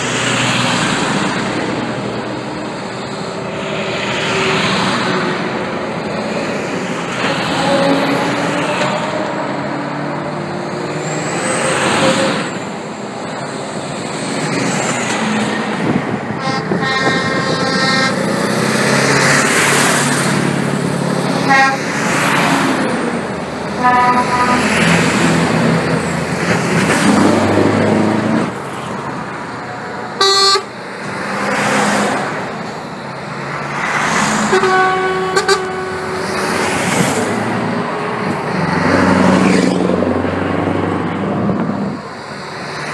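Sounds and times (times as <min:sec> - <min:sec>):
heavy lorries driving past: 0:00.0 - 0:42.9
truck horn blasts: 0:16.4 - 0:18.4, 0:21.4 - 0:22.0, 0:23.8 - 0:25.0, 0:30.2 - 0:30.8, 0:34.4 - 0:36.4.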